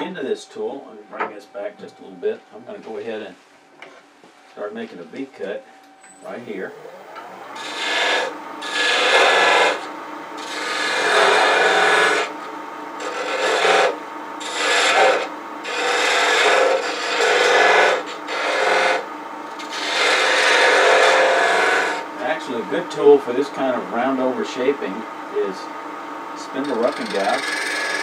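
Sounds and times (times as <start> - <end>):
wood lathe running: 6.5 - 28.0
turning tool cutting wood: 6.6 - 24.3, 26.4 - 28.0.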